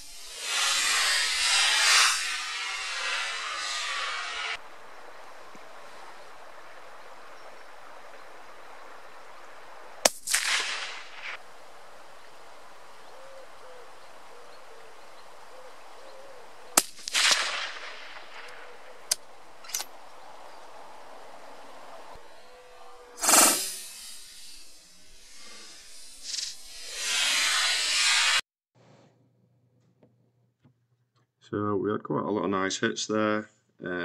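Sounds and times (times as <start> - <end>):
rifle shots: 10.0 - 11.4, 16.8 - 18.8.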